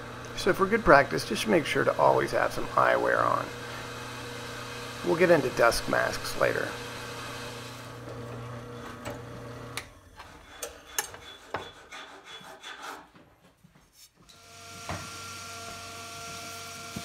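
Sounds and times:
different steady hum: 0.0s - 8.2s
steady machine hum: 0.0s - 9.8s
rubbing and scraping: 10.2s - 14.2s.

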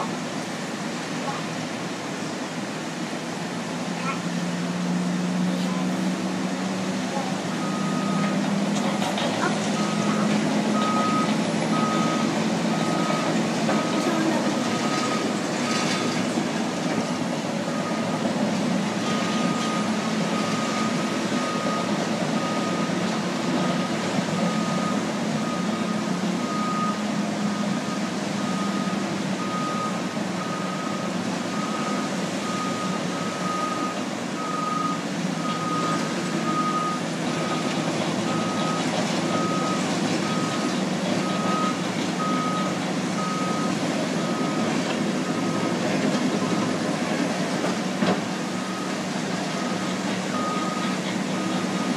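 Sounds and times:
diesel bulldozers running: 0.0s - 51.9s
backup alarm beeping: 9.8s - 14.1s, 50.4s - 51.9s.

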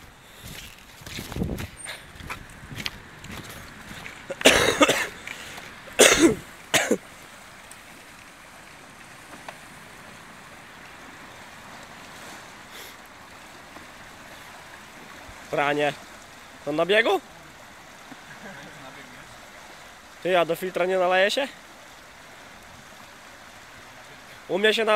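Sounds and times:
river water rushing: 0.0s - 24.9s.

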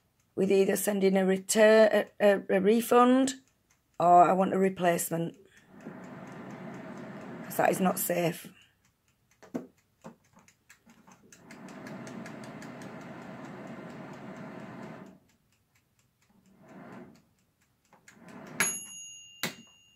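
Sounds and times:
clockwork timer ticking: 0.0s - 19.9s
hair dryer blower running: 5.8s - 7.6s, 11.4s - 15.2s, 16.7s - 17.2s, 18.2s - 18.7s.

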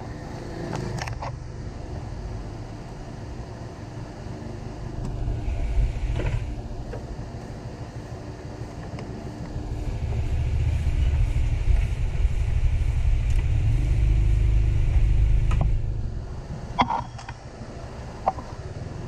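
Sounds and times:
road vehicle passing: 9.2s - 16.8s.

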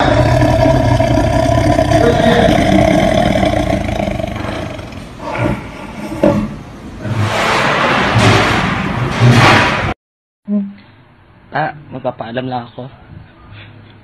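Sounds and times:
tiger roaring: 0.0s - 7.7s.

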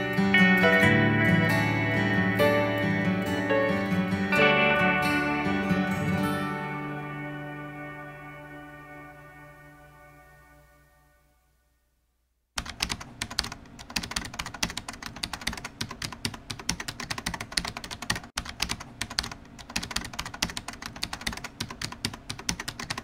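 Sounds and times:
fast typing on computer keyboard: 12.6s - 23.0s.

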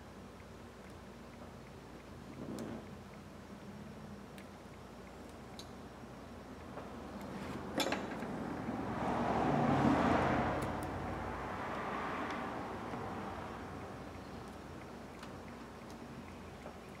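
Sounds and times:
broad passing noise: 8.4s - 13.7s.

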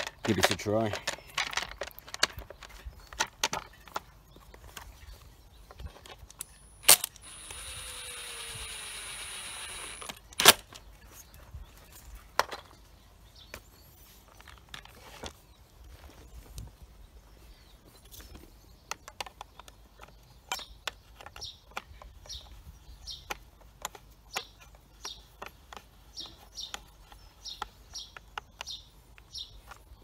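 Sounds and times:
sharp loud clicks: 6.3s - 10.8s
steady whir: 6.8s - 10.6s.

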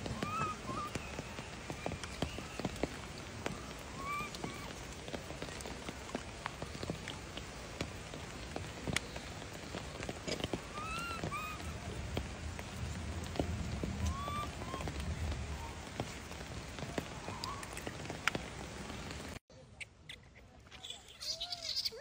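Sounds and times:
macaque cooing: 0.1s - 1.0s, 3.9s - 4.7s, 10.7s - 11.7s, 14.1s - 15.0s.

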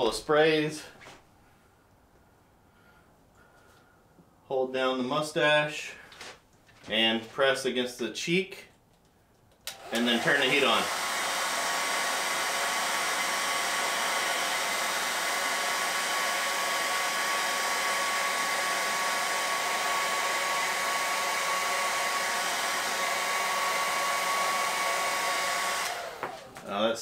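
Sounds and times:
hair dryer blowing: 9.7s - 27.0s.

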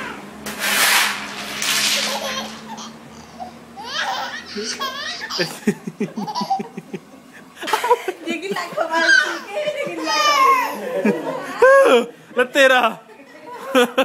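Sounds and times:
trowel scraping through pebbles: 0.5s - 2.6s
toddler laughing: 1.8s - 7.1s, 7.7s - 11.8s.

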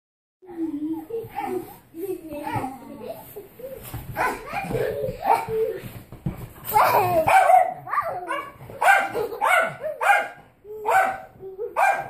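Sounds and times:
dog barking: 7.2s - 12.0s.

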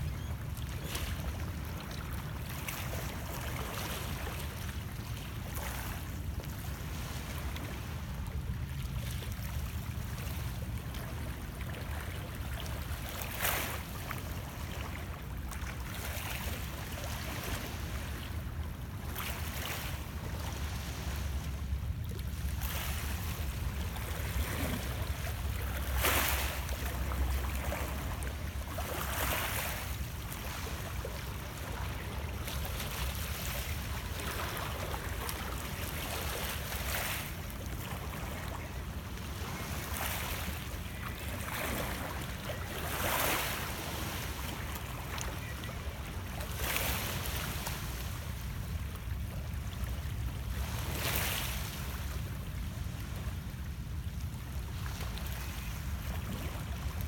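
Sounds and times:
waves lapping against rocks: 9.4s - 49.3s.

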